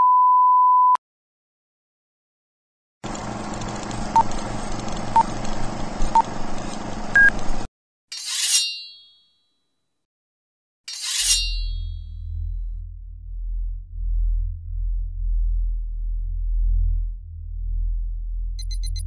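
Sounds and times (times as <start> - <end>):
film projector crackle: 3.0 - 7.7
blade swish: 10.9 - 11.9
metallic shing hits: 10.9 - 12.1
low drone: 12.0 - 19.0
countdown beeps: 18.6 - 19.0.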